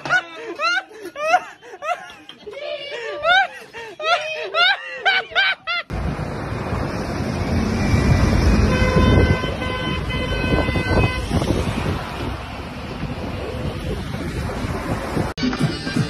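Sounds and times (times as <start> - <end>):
street traffic rumbling: 0.0 - 16.0
wind buffeting microphone: 7.7 - 15.4
vehicle horn blast: 8.4 - 11.5.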